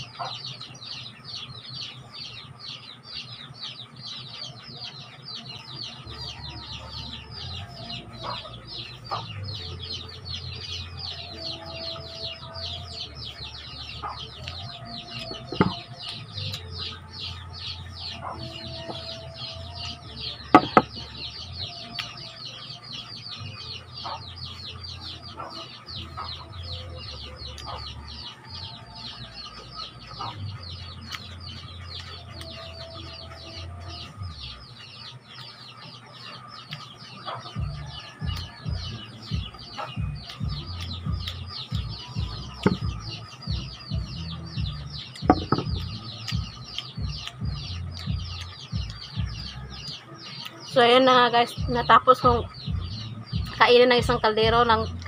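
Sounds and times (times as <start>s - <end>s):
chickens clucking: 0.0s - 55.0s
rapid high-pitched chirping: 0.0s - 55.0s
sharp knocks: 20.5s - 21.0s, 45.2s - 45.9s.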